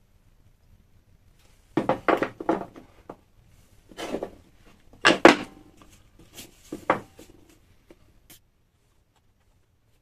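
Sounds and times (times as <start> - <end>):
wooden pieces knocking on table: 1.8 - 3.2, 4.0 - 5.6, 6.7 - 7.2.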